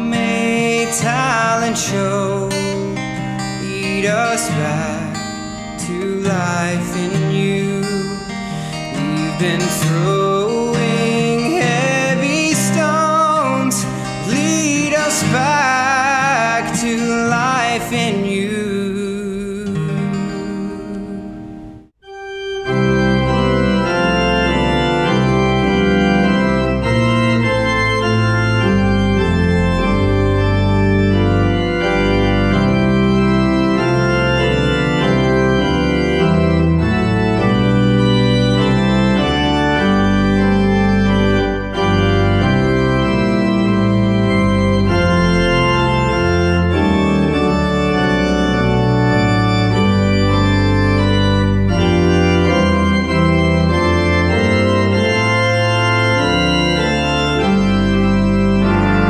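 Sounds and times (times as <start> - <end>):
acoustic guitar chord: 0.0 - 33.5.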